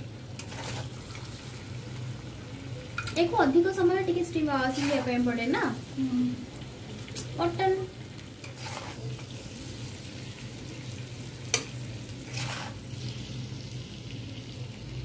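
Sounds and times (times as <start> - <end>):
food sizzling: 0.0 - 15.0
metal spoon scraping wok: 4.6 - 5.3, 8.4 - 9.2, 12.2 - 12.8.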